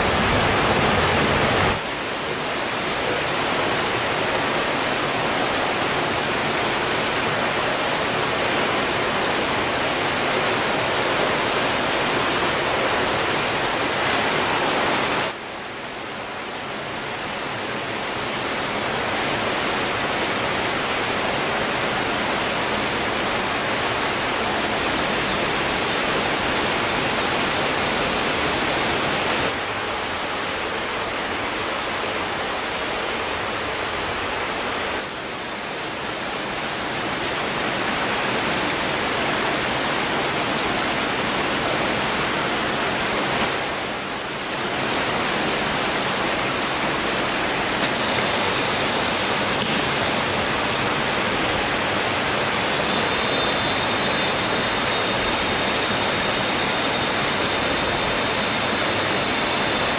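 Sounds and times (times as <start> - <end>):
stream and waterfall rushing: 0.0 - 59.9
faint high steady tone: 52.1 - 59.9.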